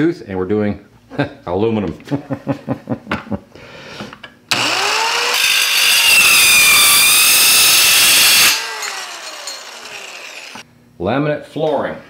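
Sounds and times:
circular saw motor starting: 4.5 - 10.6
saw blade cutting metal: 4.5 - 10.6.

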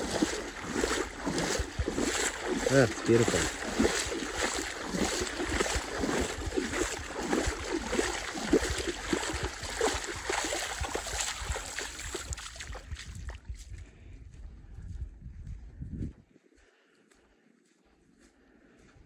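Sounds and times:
water lapping: 0.0 - 13.6
wind on microphone: 0.0 - 16.3.

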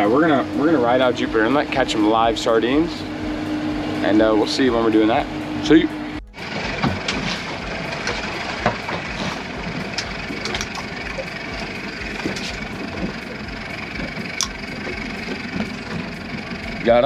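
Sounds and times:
outboard engine running: 0.0 - 17.0.

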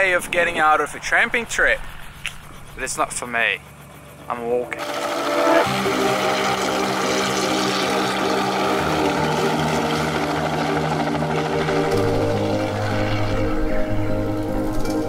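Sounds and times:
helicopter flying: 0.0 - 15.0
background music: 4.1 - 15.0.

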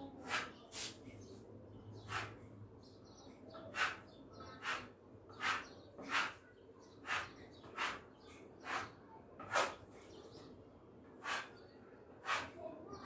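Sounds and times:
spatula scraping paint on wall: 0.2 - 1.0, 2.0 - 2.4, 3.6 - 9.9, 11.2 - 12.6.

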